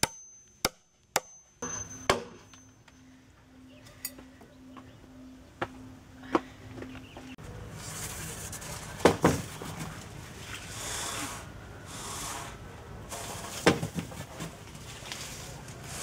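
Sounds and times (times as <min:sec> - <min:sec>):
logs scraping over gravel: 0:13.1 - 0:16.0.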